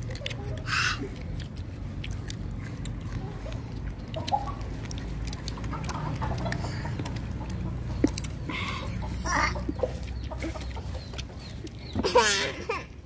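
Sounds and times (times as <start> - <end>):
wet mouth sounds: 0.0 - 11.9
child chewing crunchy fruit: 0.0 - 13.0.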